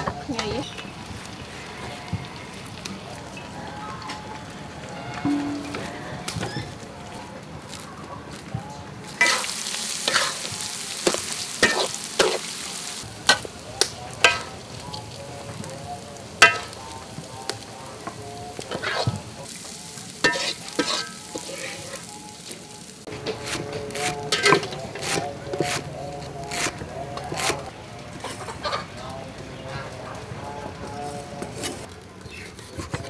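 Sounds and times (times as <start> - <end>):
metal ladle clanking against pan: 5.2 - 6.0
rice sizzling in a wok: 9.0 - 25.9.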